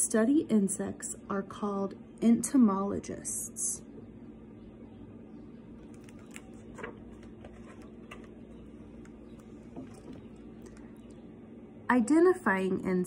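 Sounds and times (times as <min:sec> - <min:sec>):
room tone hum: 0:00.0 - 0:13.0
book pages flipping: 0:05.8 - 0:11.1.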